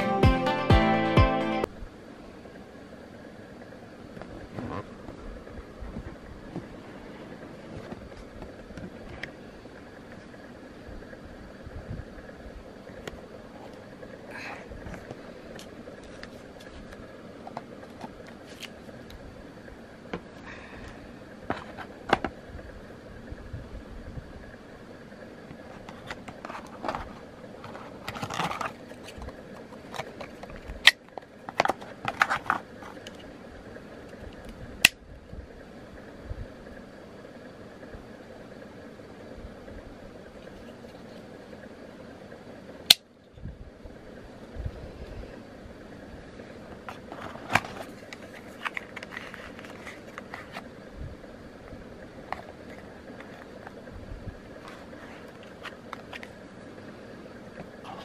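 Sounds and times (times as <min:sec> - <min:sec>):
cardboard packaging rustling: 0:25.6 - 0:33.2, 0:46.7 - 0:50.7.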